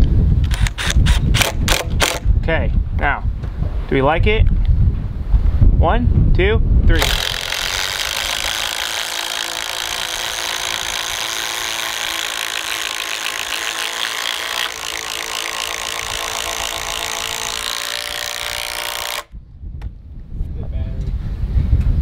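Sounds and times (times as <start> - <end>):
impact drivers hammering: 7.0 - 19.3.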